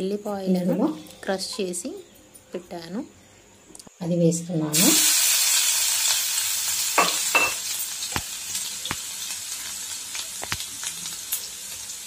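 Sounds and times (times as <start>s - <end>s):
garlic sizzling in hot oil: 4.7s - 12.0s.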